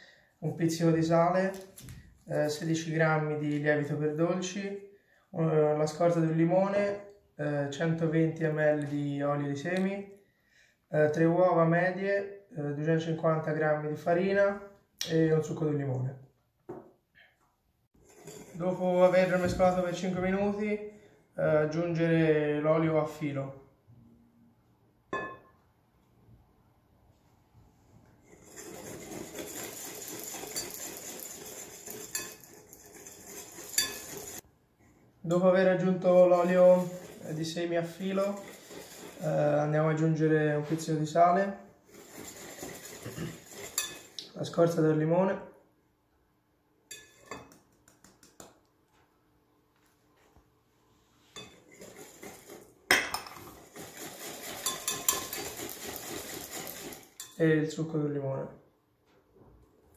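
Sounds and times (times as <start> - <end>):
whisk scraping glass bowl: 18.0 - 20.1, 28.2 - 34.5, 35.5 - 44.7, 51.3 - 57.8
whisk clicking against glass bowl: 28.6 - 34.4, 53.8 - 57.4.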